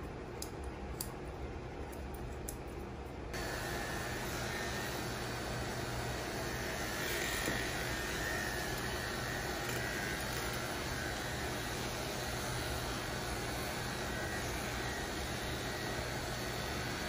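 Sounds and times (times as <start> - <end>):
electric clippers running: 3.4 - 17.0.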